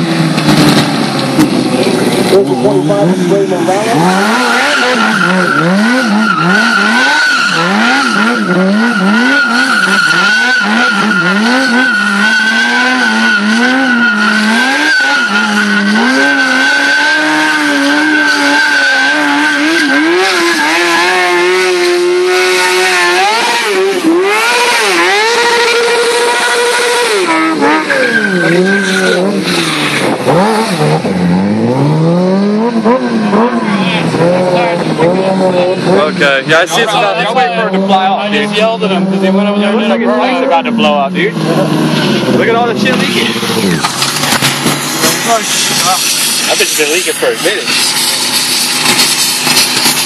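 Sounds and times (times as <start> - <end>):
motorcycle engine revving: 0.0 - 50.0
tyre squealing: 3.7 - 40.5.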